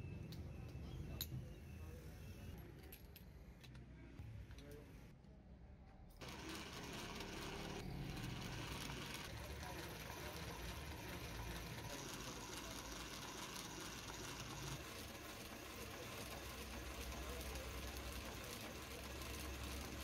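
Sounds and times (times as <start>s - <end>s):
coil winding machine whirring: 6.2s - 20.0s.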